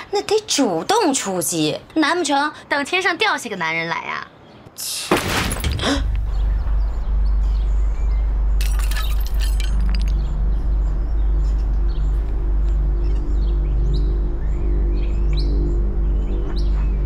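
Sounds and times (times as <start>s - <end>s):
debris clattering and breaking: 5.1s - 6.1s, 8.6s - 10.3s
steady low drone: 6.0s - 17.0s.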